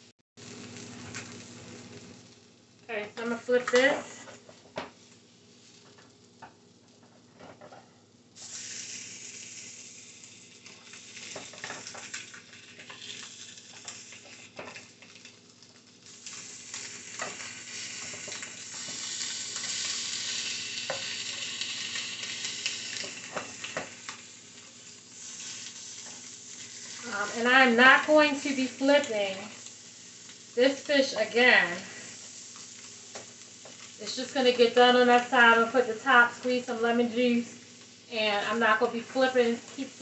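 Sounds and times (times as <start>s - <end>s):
fish sizzling in a frying pan: 0.4s - 40.0s.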